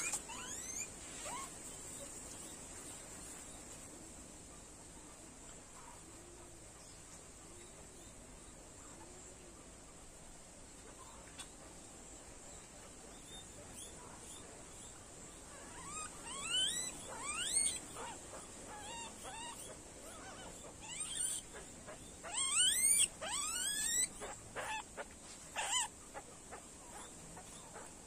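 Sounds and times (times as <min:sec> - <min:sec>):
guinea pig squealing: 0:00.0 - 0:01.5, 0:15.5 - 0:27.9.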